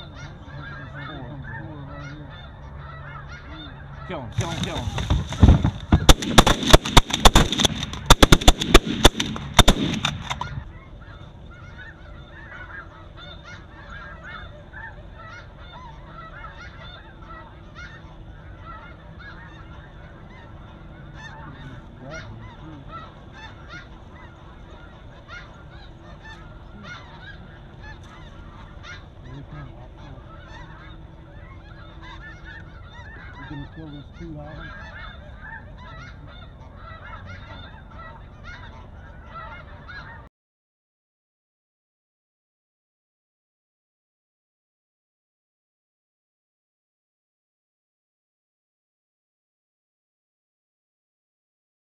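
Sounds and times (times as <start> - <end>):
snow geese calling: 0.0 - 40.3
shotgun fire: 4.4 - 10.4.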